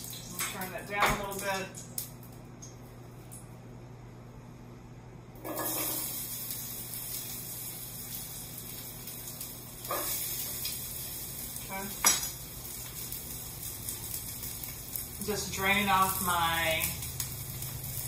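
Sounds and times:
vegetables sizzling in hot oil: 5.4s - 18.0s.

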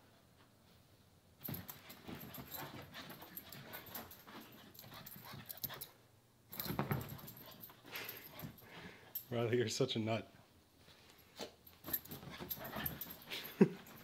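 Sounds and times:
dog scrambling on couch: 6.6s - 8.6s, 11.8s - 14.0s.

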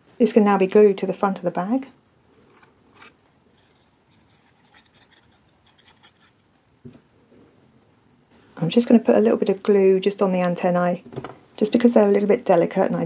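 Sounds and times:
glue nozzle scraping card: 2.4s - 6.5s
card scratching: 2.4s - 6.6s.

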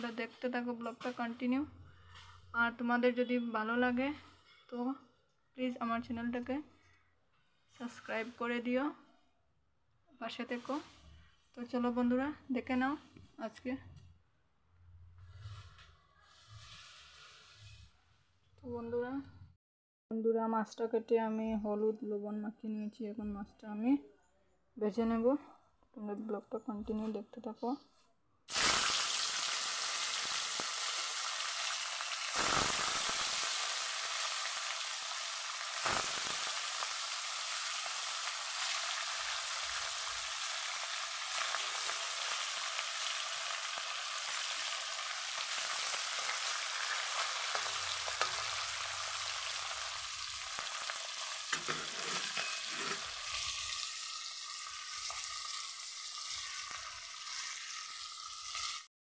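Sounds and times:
fish sizzling in hot oil: 15.3s - 17.9s, 28.5s - 58.9s.

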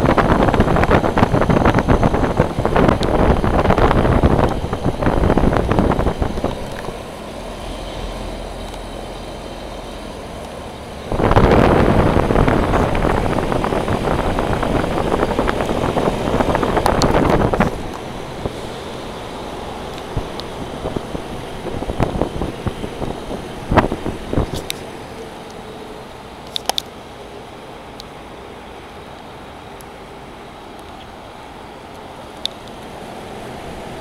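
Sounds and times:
air rushing over microphone: 0.0s - 26.4s
air-conditioner condenser fan running: 0.0s - 34.0s.

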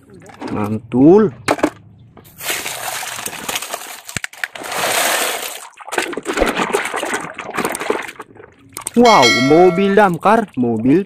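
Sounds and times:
water sloshing and splashing: 2.3s - 9.0s.

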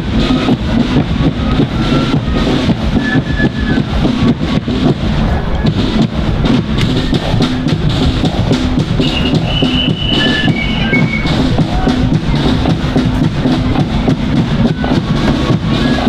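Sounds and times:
bass and snare drums beating: 0.0s - 16.0s
high flute notes: 9.0s - 12.4s.

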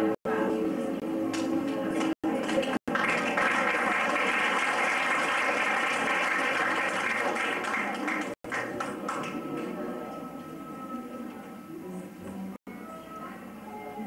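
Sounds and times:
faint background music: 0.0s - 3.6s, 8.5s - 14.0s
audience clapping: 1.4s - 9.8s.

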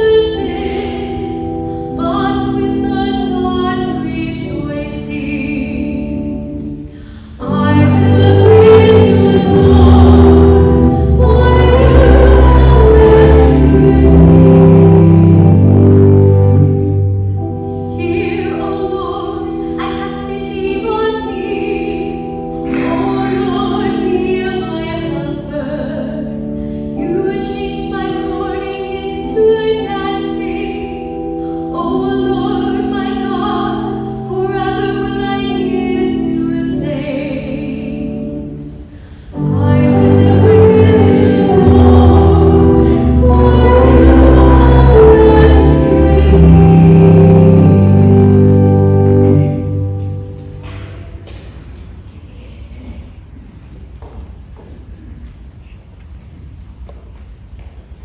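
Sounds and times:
sustained keyboard chords: 0.0s - 52.2s
cantor singing psalm: 7.4s - 15.8s, 18.0s - 50.2s.

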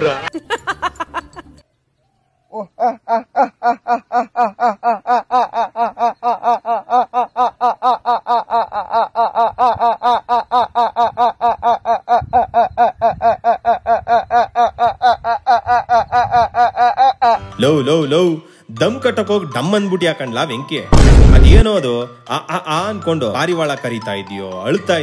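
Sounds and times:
man laughing staccato: 2.6s - 17.4s.

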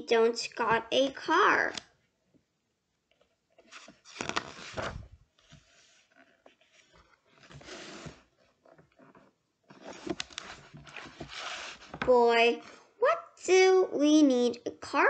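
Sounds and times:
paper page rustling: 3.6s - 8.3s, 9.7s - 12.1s.

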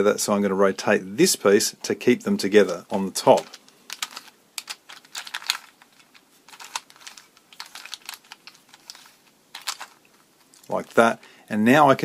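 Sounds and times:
puzzle cube clicking: 3.3s - 10.1s.

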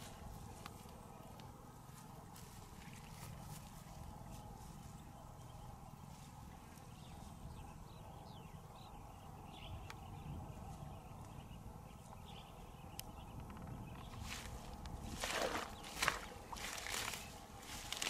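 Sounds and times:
low wind rumble: 0.0s - 18.0s.

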